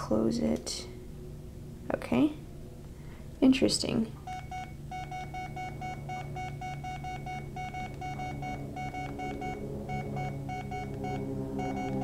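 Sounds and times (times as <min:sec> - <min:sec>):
steady low hum: 0:00.0 - 0:12.0
keypad beeps: 0:04.3 - 0:12.0.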